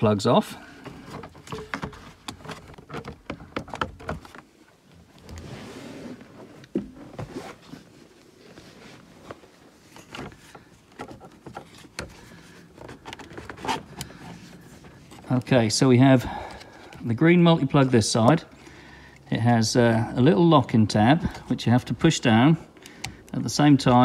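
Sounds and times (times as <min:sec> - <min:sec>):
scraping rustle: 0:05.1 - 0:15.7.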